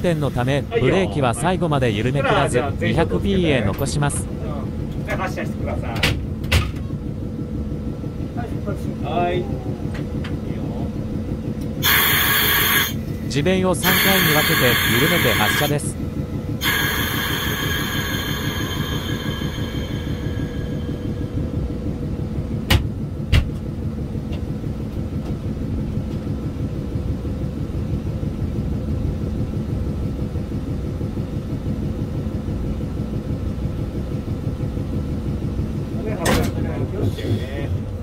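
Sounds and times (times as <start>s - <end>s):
locomotive low rumble: 0.0s - 38.0s
compressed air hissing: 11.8s - 13.1s, 13.8s - 15.8s, 16.6s - 21.1s.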